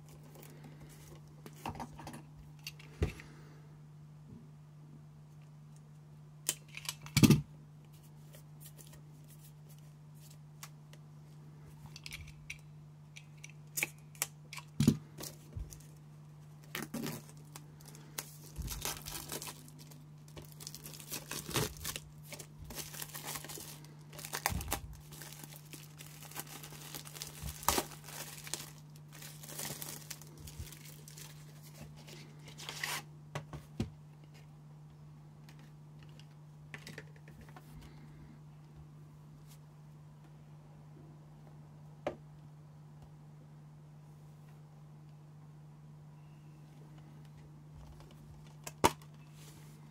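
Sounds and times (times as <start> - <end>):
steady low hum: 0.0 - 49.9
shrink wrap crinkling and tearing: 13.4 - 33.0.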